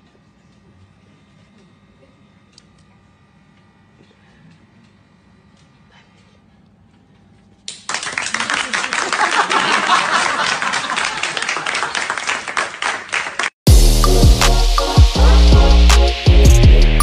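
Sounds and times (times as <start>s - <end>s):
group clapping: 7.7s - 13.6s
people cheering: 7.9s - 13.5s.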